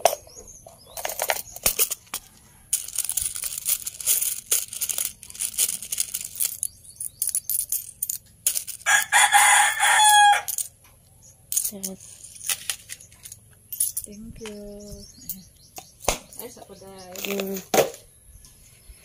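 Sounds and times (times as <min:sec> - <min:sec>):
coins clattering in a box: 0:00.9 - 0:10.8, 0:11.5 - 0:14.2
rooster crowing: 0:08.8 - 0:10.6.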